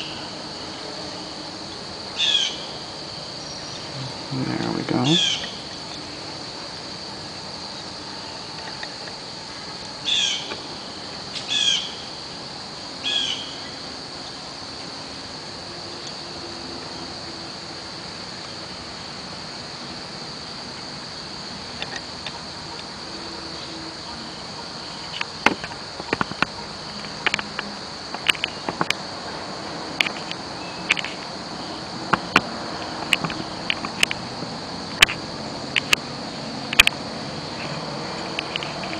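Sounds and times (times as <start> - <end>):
insect buzzing: 0.0 - 38.9
bird chirps: 5.0 - 6.1, 13.0 - 13.8.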